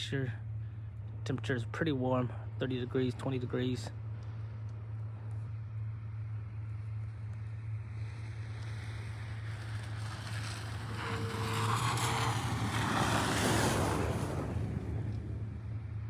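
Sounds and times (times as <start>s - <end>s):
steady low hum: 0.0s - 16.0s
tyres on packed snow: 1.6s - 16.0s
car engine driving past: 7.6s - 16.0s.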